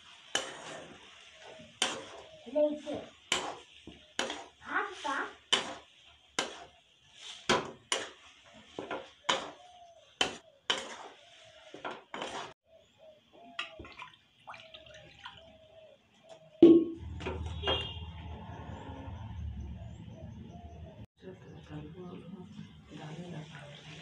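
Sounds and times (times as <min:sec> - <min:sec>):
spatula scraping a steel pan: 0:00.0 - 0:12.6.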